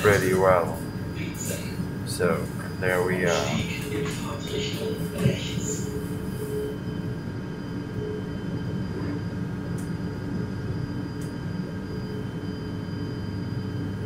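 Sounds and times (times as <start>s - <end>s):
electric train rumble and hum: 0.0s - 14.0s.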